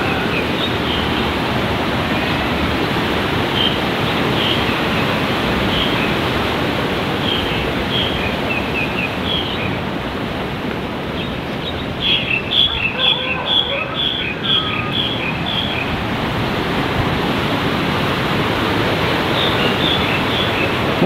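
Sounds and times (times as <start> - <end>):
river rushing over rocks: 0.0 - 21.0.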